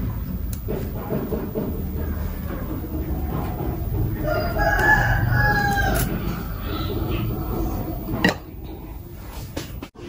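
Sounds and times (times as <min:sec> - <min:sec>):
rooster crowing: 0:03.2 - 0:08.0.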